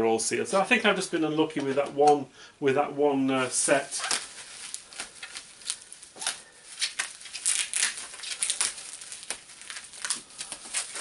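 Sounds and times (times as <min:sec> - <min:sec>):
bubble wrap crinkling: 0:03.4 - 0:11.0.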